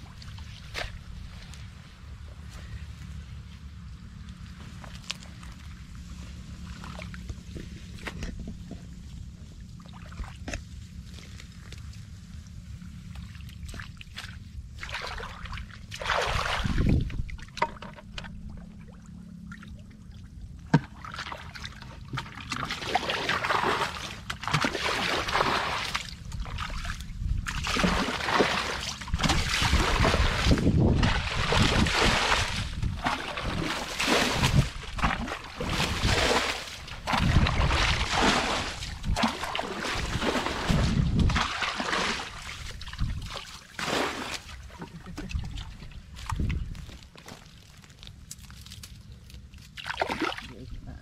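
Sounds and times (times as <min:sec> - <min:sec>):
bucket scooping and splashing water: 0:06.6 - 0:08.7, 0:09.8 - 0:11.5, 0:13.1 - 0:48.9, 0:49.6 - 0:50.7.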